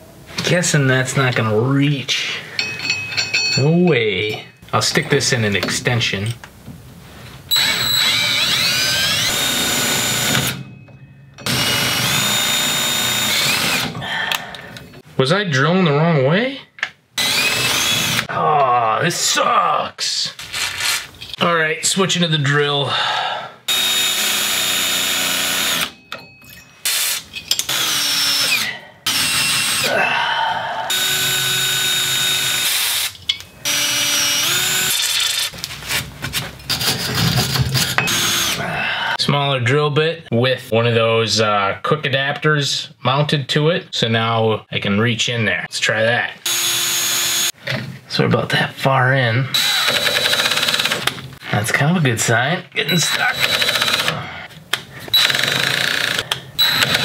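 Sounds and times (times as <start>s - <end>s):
power drill motor whining: 7.5s - 10.6s, 11.4s - 14.0s, 17.2s - 18.3s, 23.7s - 26.0s, 26.8s - 29.9s, 30.9s - 35.5s, 37.9s - 38.6s, 46.5s - 47.6s, 49.5s - 51.2s, 52.9s - 54.2s, 55.1s - 57.0s.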